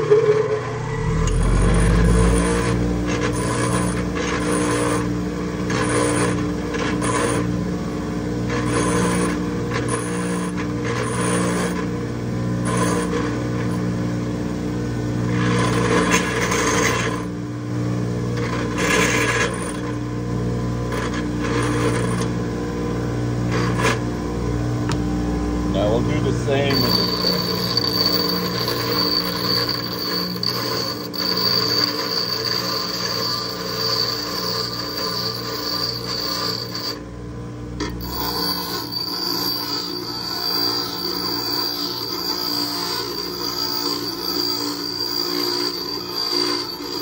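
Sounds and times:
bench grinder motor hum: 0.1s - 7.7s, 23.4s - 37.2s, 37.8s - 47.0s
metal grinding rasp: 26.6s - 37.0s, 37.8s - 47.0s.

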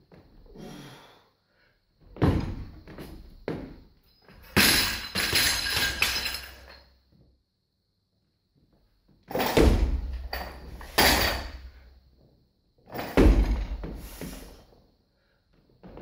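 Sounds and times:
barbell crashing on floor: 4.4s - 6.5s, 9.3s - 11.8s, 12.9s - 14.3s
barbell thud: 9.3s - 11.7s, 13.0s - 14.4s.

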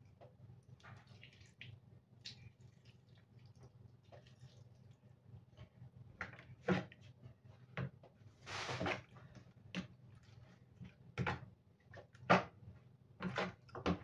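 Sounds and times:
spoon swishing stir: 8.4s - 9.1s.

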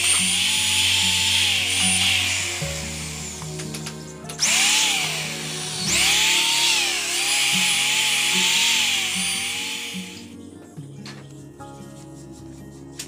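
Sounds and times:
electric drill boring into wood: 0.0s - 10.3s
background music: 0.0s - 13.0s.

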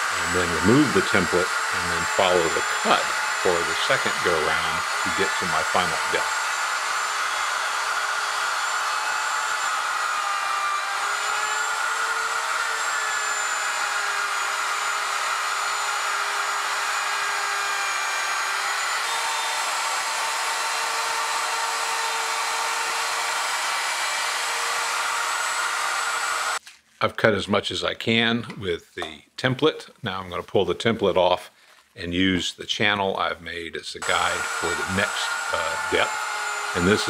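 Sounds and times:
router whining while cutting wood: 0.0s - 26.6s, 34.0s - 37.0s.

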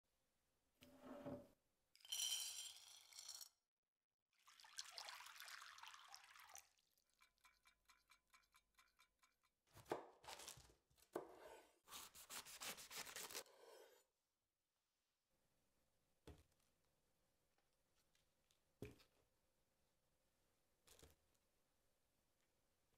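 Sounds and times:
water poured over beans: 4.4s - 7.8s
water dripping: 4.5s - 9.2s.

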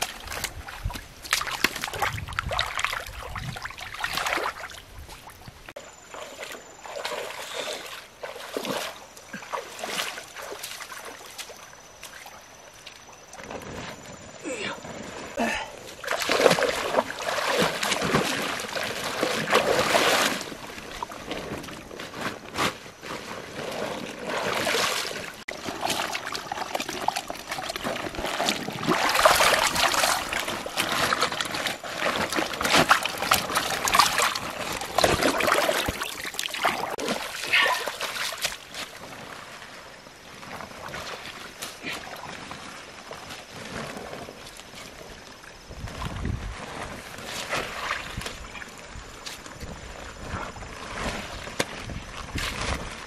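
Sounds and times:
stream water splashing: 0.0s - 22.2s, 23.0s - 53.0s
plastic sack swished through water: 13.4s - 53.0s.

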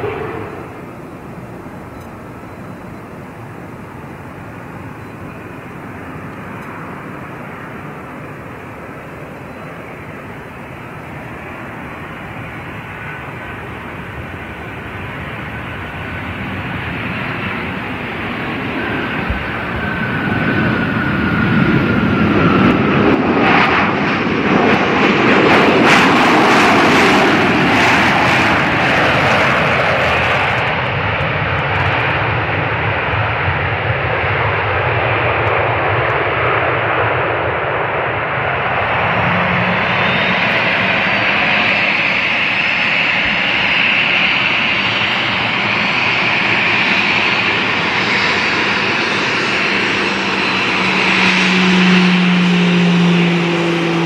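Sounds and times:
high whine: 0.0s - 16.6s, 35.3s - 54.0s
steady low hum: 0.0s - 16.8s
jet engines roaring: 0.0s - 54.0s.

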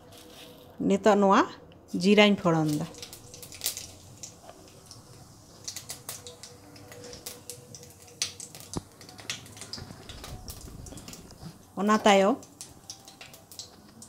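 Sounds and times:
seeds popping in hot oil: 2.5s - 14.0s.

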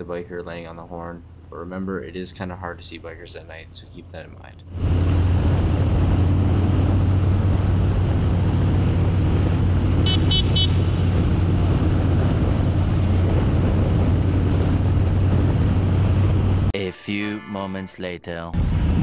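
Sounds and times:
road and wind noise: 0.0s - 16.8s, 18.6s - 19.0s
motorcycle engine running: 5.4s - 16.7s.

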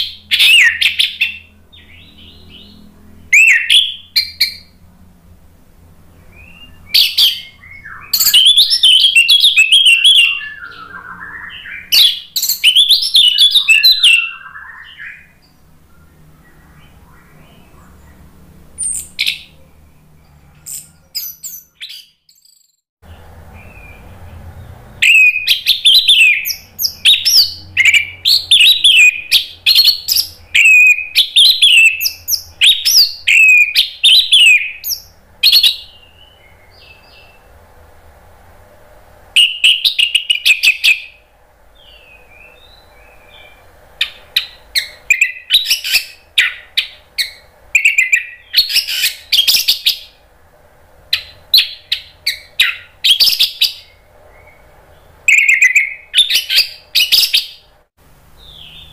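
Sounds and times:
thrush singing whistled phrases: 0.0s - 4.8s, 6.2s - 18.0s, 25.0s - 37.4s, 39.4s - 41.2s, 41.8s - 50.2s, 51.1s - 57.7s
short bird calls: 6.2s - 18.2s.

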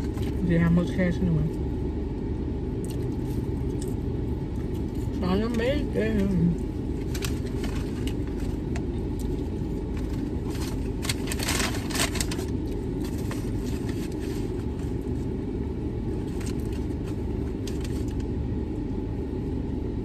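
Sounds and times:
paper crinkling: 7.0s - 15.3s, 16.1s - 18.3s.

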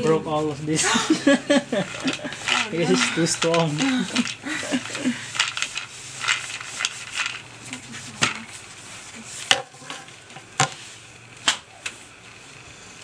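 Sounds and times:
thread rustling: 1.7s - 10.1s.

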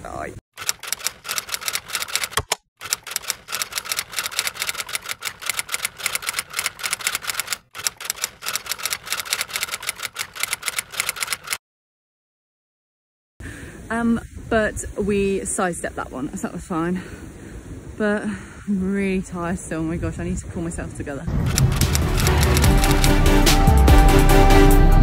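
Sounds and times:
typewriter key clicks: 0.6s - 11.6s, 21.5s - 23.2s.

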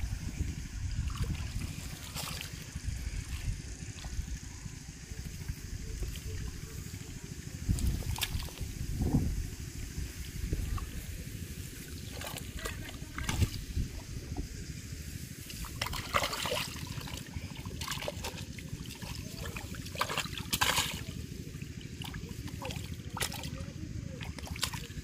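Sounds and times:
steady low rumble: 0.0s - 25.0s
hands splashing in water: 15.5s - 21.1s.

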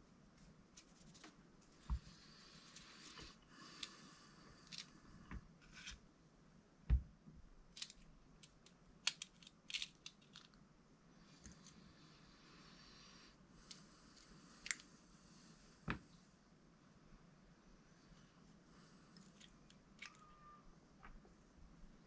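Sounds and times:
small clicks and taps of parts: 7.8s - 10.6s.

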